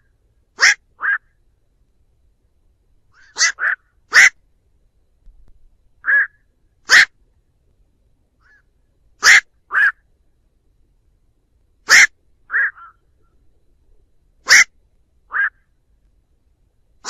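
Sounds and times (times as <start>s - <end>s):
heron calls: 0.6s - 1.4s, 3.2s - 4.4s, 6.0s - 7.2s, 9.2s - 10.0s, 11.8s - 13.3s, 14.4s - 15.7s.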